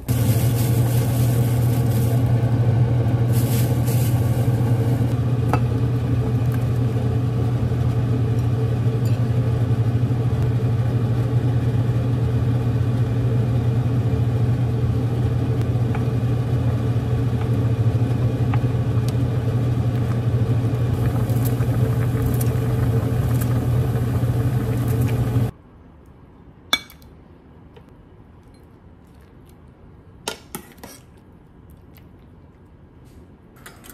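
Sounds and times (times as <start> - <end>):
soup boiling in a pot: 0.0 - 25.6
low hum and rumble: 0.0 - 30.2.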